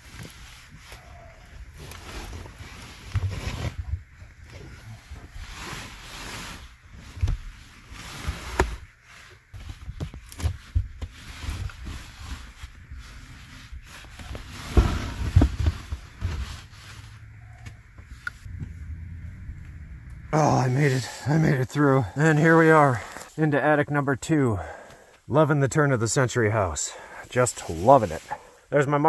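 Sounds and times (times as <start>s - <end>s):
clothing scraping against wood: 0.0s - 18.9s, 26.9s - 28.7s
knocks and bumps: 14.6s - 16.6s, 17.9s - 20.3s.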